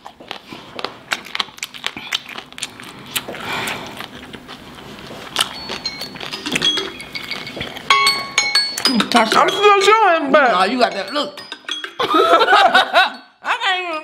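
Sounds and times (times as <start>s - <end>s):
wet eating mouth sounds: 0.0s - 7.9s.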